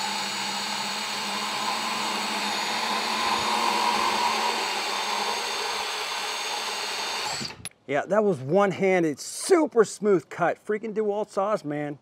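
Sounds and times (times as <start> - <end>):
bandsaw cutting steel pipe: 0.0 - 7.7.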